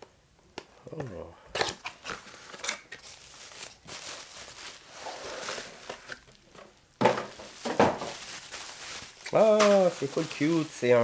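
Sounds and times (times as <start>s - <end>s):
cardboard box rustling: 3.0s - 6.2s, 7.2s - 10.7s.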